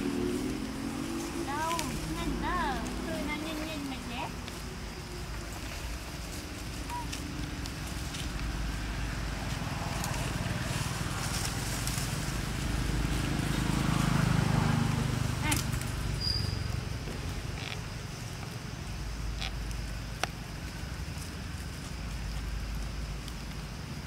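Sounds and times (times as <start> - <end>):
faint voices: 1.4 - 8.4.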